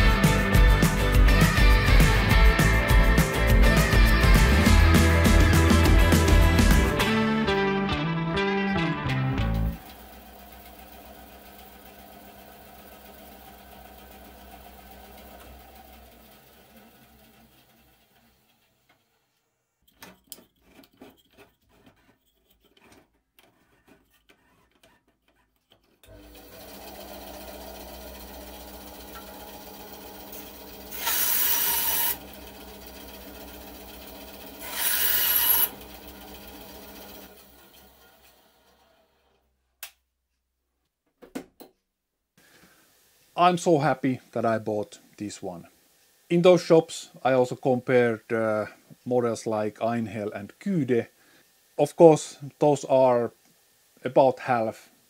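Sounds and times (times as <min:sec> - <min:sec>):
bandsaw motor humming: 0:09.4 - 0:18.9, 0:26.1 - 0:39.2
saw blade cutting board: 0:30.3 - 0:32.2, 0:34.6 - 0:35.8.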